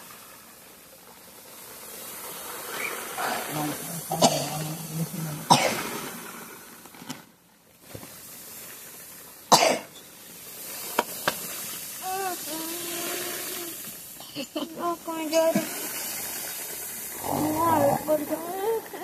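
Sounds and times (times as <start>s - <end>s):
grain pouring onto plastic tarp: 0.0s - 19.0s
person coughing: 4.1s - 4.7s, 5.5s - 5.8s, 9.5s - 9.9s.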